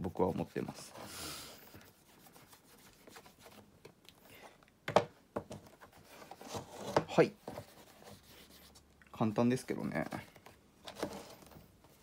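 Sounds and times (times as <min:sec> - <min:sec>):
cloth rubbing on leather shoe: 0:01.8 - 0:03.7, 0:07.2 - 0:08.9.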